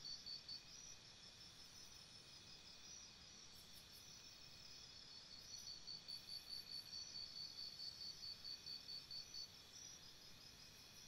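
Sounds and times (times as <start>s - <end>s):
insect chirping: 0.0s - 11.0s.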